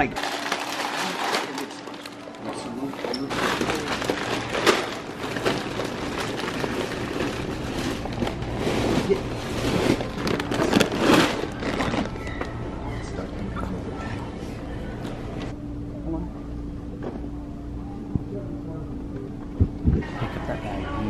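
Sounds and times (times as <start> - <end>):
plastic bags crinkling: 0.1 - 12.3.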